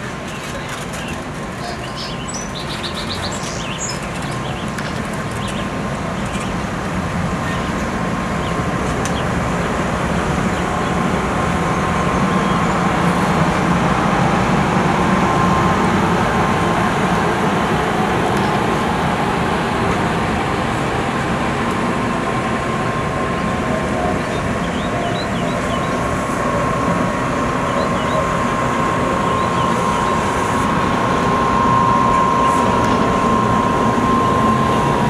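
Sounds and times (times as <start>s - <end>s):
train wheels rumbling on rails: 0.0s - 35.0s
bird chirping: 0.3s - 6.5s.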